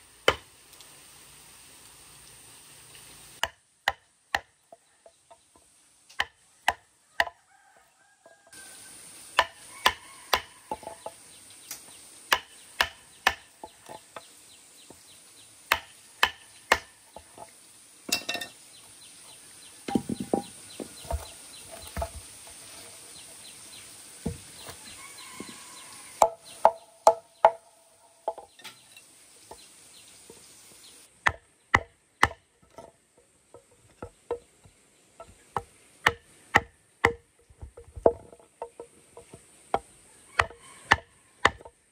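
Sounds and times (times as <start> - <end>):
wood chisel knocking: 6.2 - 7.4, 9.4 - 11.1, 12.3 - 14.0, 15.7 - 17.3, 19.9 - 22.2, 26.2 - 27.6, 31.2 - 32.8, 35.2 - 41.8.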